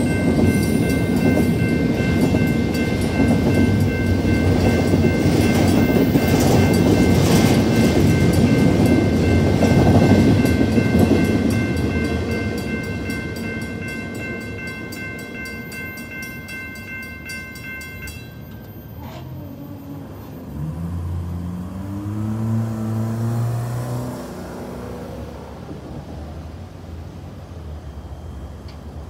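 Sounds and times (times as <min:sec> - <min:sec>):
crossing bell ringing rapidly: 0:00.0 - 0:19.8
freight train wheel noise: 0:00.0 - 0:29.0.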